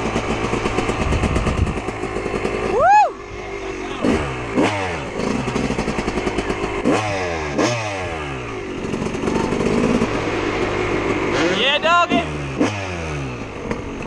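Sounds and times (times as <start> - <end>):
dirt bike engine revving: 0.0 - 14.0.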